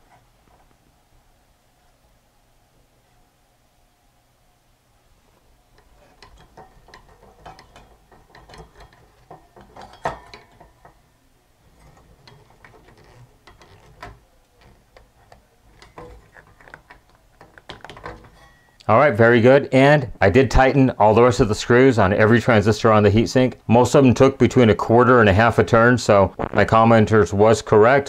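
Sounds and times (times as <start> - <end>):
screwdriver clicking and scraping: 11.7 - 18.6.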